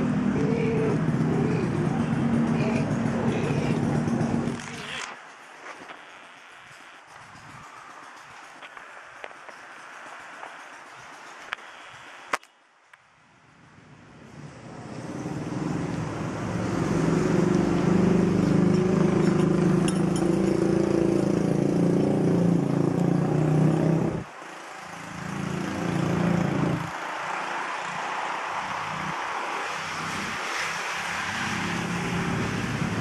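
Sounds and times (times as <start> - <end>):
engine hum: 0.0 - 5.2, 13.6 - 33.0.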